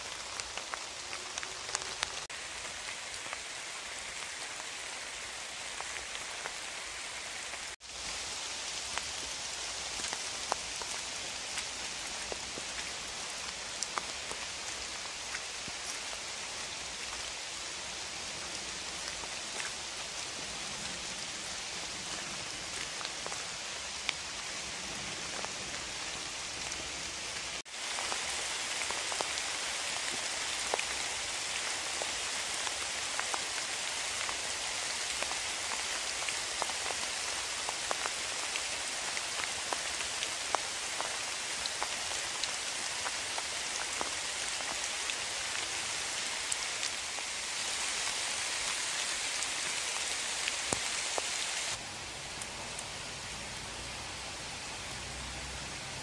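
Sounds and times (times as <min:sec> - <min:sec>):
raindrops ticking: 0:00.0 - 0:04.3, 0:08.8 - 0:16.4
steady rain: 0:00.0 - 0:56.0.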